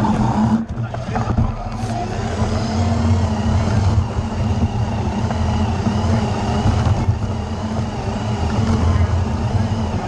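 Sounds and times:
electric motors humming: 0:00.0 - 0:10.0.

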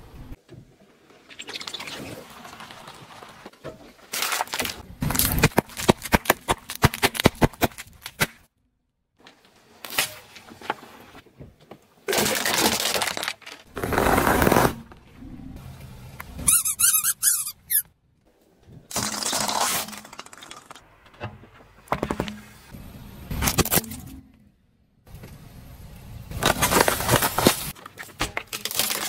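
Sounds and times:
tyre crushing plastic tray: 0:04.1 - 0:08.4, 0:12.1 - 0:14.9, 0:18.9 - 0:20.8, 0:26.4 - 0:29.0.

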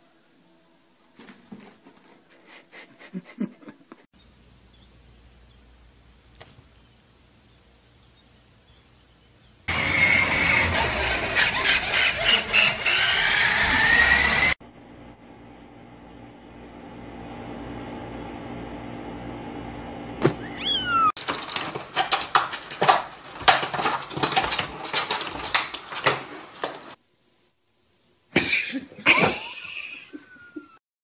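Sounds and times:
cat meowing: 0:20.4 - 0:21.2.

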